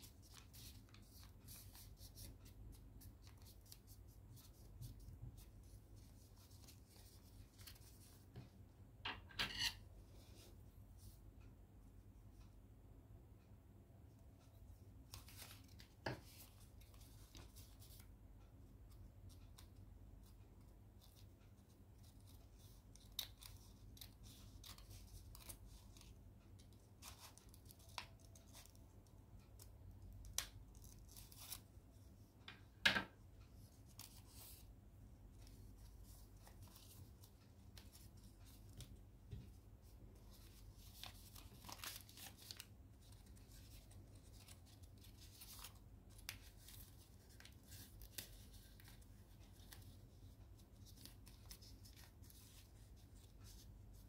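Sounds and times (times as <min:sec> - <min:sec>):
paper rustling and crinkling: 0:40.2 - 0:54.0.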